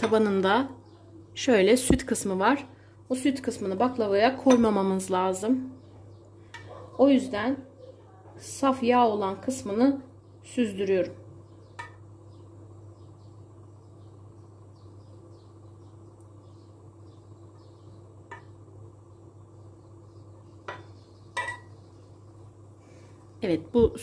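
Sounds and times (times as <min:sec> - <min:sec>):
metal spoon clinking on saucepan: 0:21.4 - 0:21.7.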